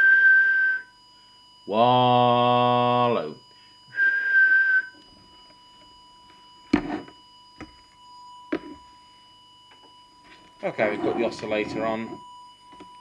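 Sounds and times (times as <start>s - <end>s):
whistled note with hiss: 0.0s - 1.0s, 3.9s - 5.0s
faint steady test tone: 0.0s - 13.0s.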